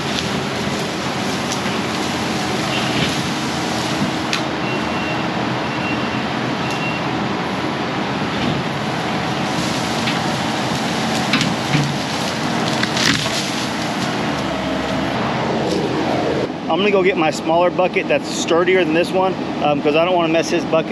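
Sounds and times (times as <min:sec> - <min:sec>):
diesel engine running under load: 0:00.0 - 0:20.9
branches snapping: 0:09.5 - 0:15.0.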